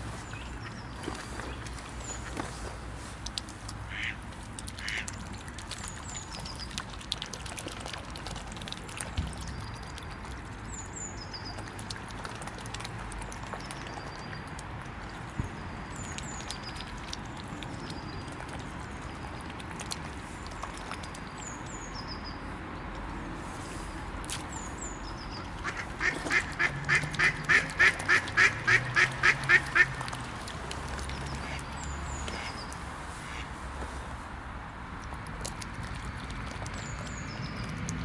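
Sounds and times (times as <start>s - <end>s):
songbird chirps: 0.0s - 4.1s, 15.3s - 27.4s
duck quacking: 3.9s - 4.2s.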